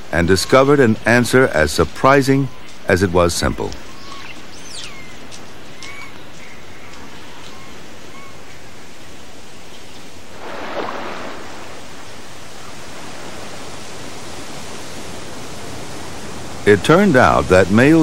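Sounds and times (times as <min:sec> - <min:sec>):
bird chirp: 0:02.3 - 0:08.6
water rushing: 0:06.6 - 0:18.0.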